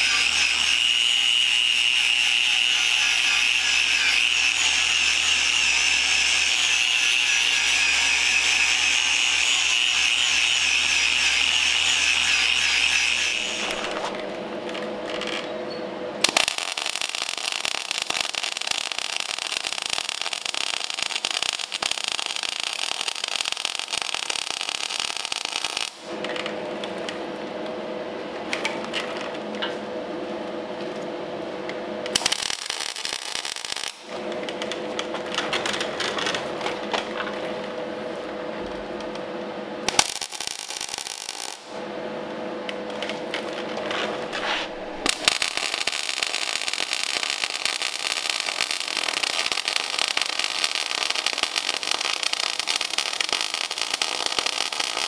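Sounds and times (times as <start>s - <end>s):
power tool high whine: 0.0s - 14.2s.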